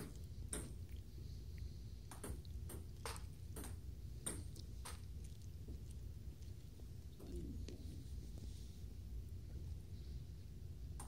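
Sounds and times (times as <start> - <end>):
low steady hum: 0.0 - 11.0
ping-pong ball hits: 2.1 - 4.5.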